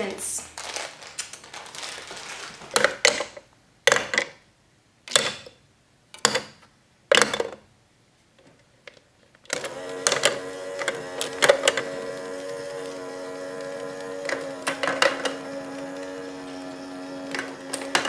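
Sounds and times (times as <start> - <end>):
plastic balls clacking into tray: 1.0 - 4.5, 6.2 - 7.7, 14.2 - 15.5.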